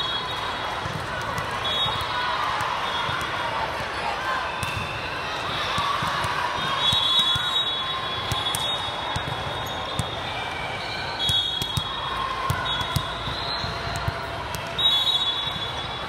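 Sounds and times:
hubbub of hall: 0.0s - 16.0s
volleyballs thumping: 11.2s - 14.8s.

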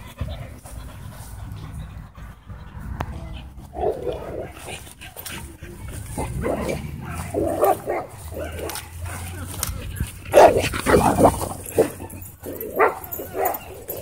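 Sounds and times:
dogs barking: 3.4s - 14.0s
dogs growling: 3.5s - 14.0s.

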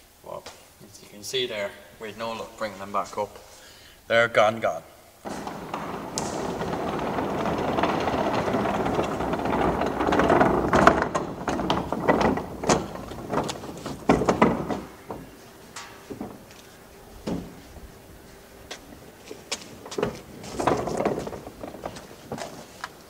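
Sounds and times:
wheelie bin rolling on concrete: 5.2s - 23.0s
bin knocks and clacks: 5.3s - 16.5s, 19.4s - 22.9s.

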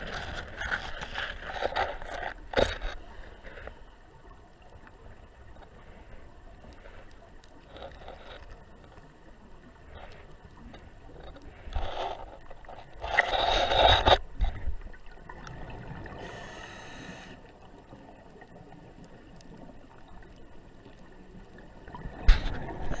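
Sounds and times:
scuba regulator bubbles underwater: 13.0s - 23.0s.

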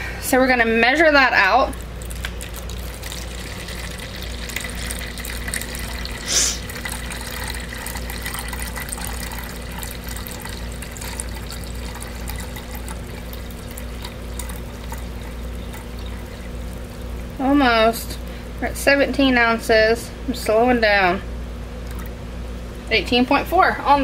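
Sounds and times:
water trickling into plastic pitcher: 1.2s - 18.9s, 21.8s - 22.2s.

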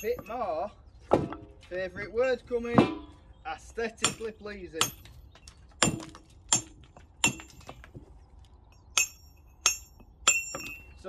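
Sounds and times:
hammer striking steel chisel: 9.0s - 10.9s.

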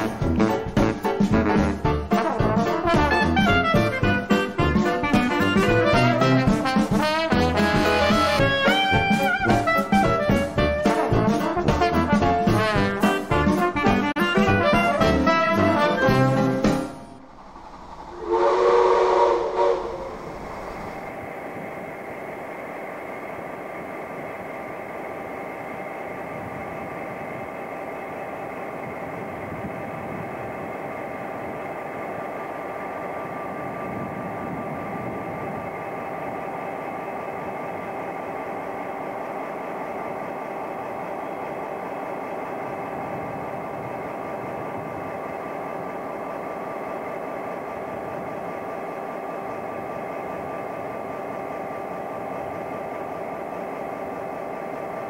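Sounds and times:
diesel locomotives idling: 18.1s - 55.0s.

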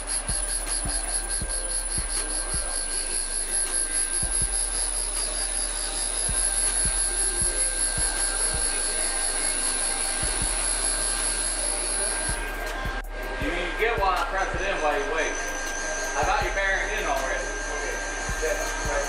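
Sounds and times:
grinding hiss: 0.0s - 12.8s
valve grinder high whine: 0.0s - 19.0s.

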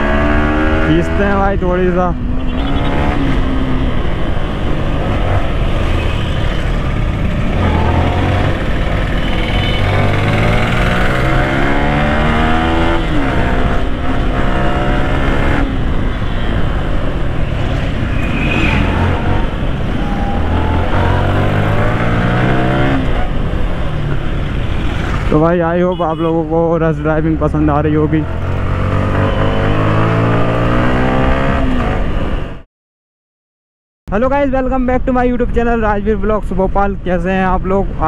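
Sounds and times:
motorcycle engine accelerating: 2.3s - 25.4s, 27.6s - 32.2s.

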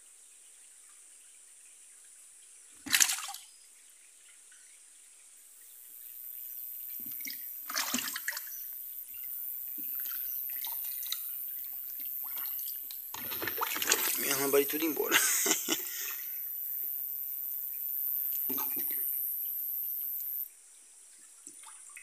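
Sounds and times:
water splash: 2.8s - 3.4s, 7.0s - 8.6s, 9.8s - 16.1s, 18.5s - 19.0s
water pouring: 7.0s - 16.2s, 18.5s - 19.0s.

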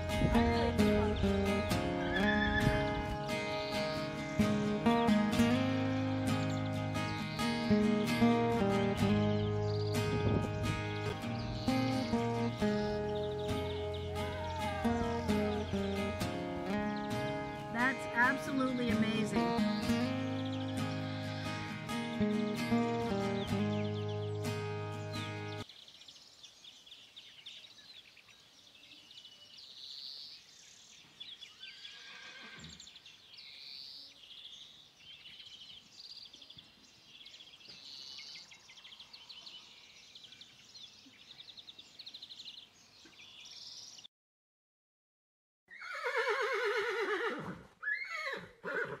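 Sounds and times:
small birds chirping: 0.0s - 44.1s
horse whinny: 1.9s - 3.0s, 31.7s - 32.9s, 45.7s - 49.0s.

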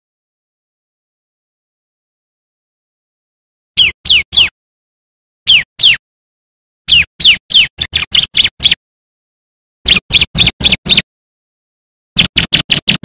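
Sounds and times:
bird singing sharp high notes: 3.8s - 4.5s, 5.5s - 6.0s, 6.9s - 8.8s, 9.9s - 11.0s, 12.2s - 13.0s.

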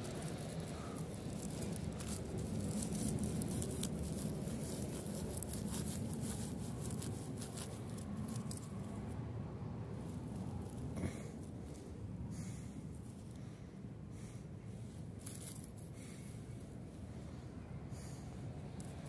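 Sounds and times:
crackles of dry grass and leaves: 0.0s - 9.2s, 15.2s - 16.3s
steady low rumble: 0.0s - 19.0s.

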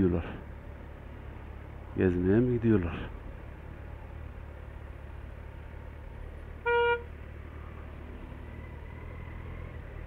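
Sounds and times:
motorcycle engine rumble: 0.0s - 10.0s
traffic: 0.0s - 10.0s
vehicle horn toot: 6.6s - 7.1s.

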